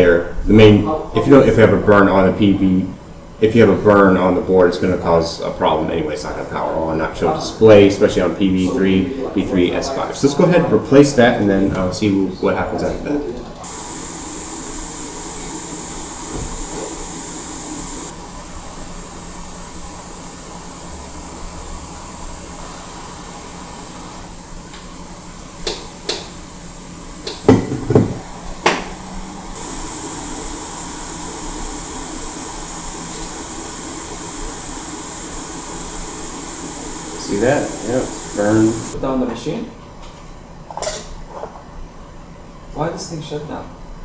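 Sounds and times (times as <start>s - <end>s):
hot air station hissing: 13.6s - 39.0s
loud knocks: 27.5s - 28.8s.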